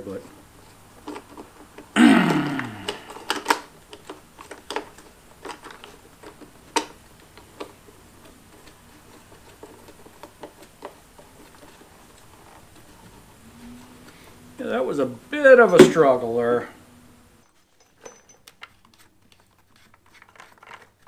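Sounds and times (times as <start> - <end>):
person grunting with effort: 2.0 - 3.3
plastic clicks and snaps: 2.8 - 7.8.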